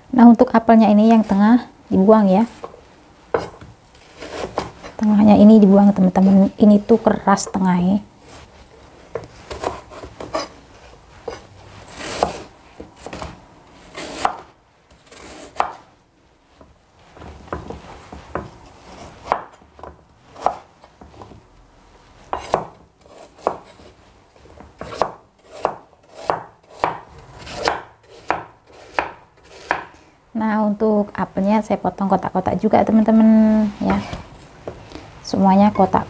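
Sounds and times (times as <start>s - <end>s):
cleaver chopping on wooden board: 15.5s - 15.8s, 19.2s - 20.6s, 22.3s - 22.8s, 24.8s - 29.9s.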